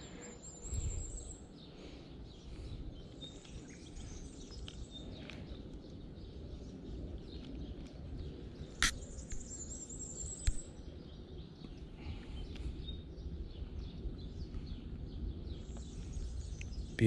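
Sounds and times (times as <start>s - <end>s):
songbirds chirping: 0.0s - 17.0s
sharp click: 8.8s - 9.4s.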